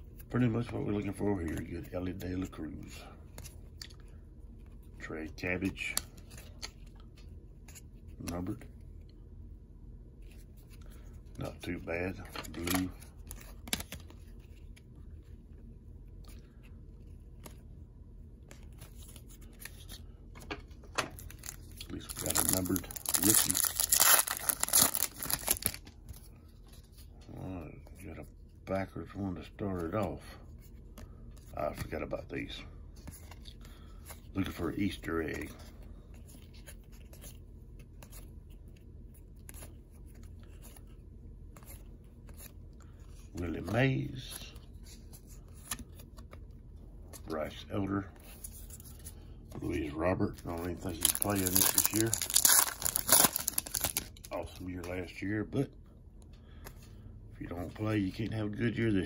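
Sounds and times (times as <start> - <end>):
low steady hum: 0.0 - 59.0
cards scraping and ticking: 0.1 - 9.2, 10.2 - 27.3, 50.4 - 55.0
cards flipped by hand: 12.2 - 15.0, 18.4 - 27.1, 44.8 - 46.5.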